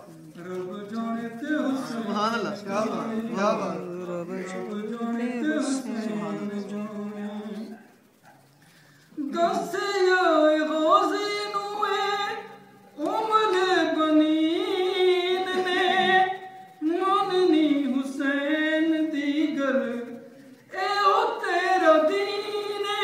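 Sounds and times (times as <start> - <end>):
man chanting: 0.3 - 7.7.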